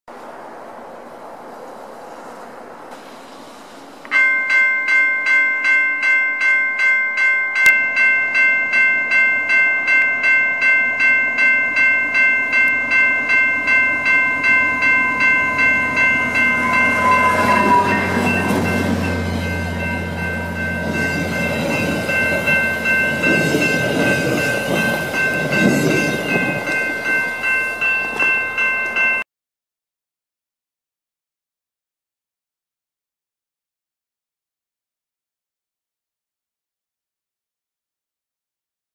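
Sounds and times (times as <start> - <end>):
diesel train rumbling past: 0.1 - 4.4, 9.0 - 29.2
level-crossing warning bell: 3.9 - 29.3.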